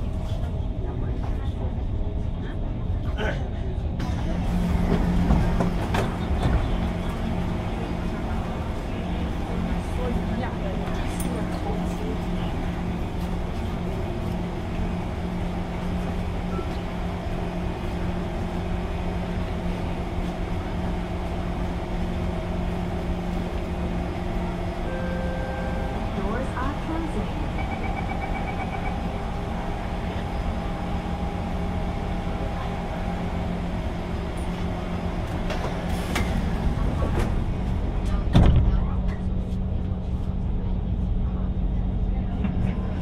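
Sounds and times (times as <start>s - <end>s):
train low drone and hum: 0.0s - 43.0s.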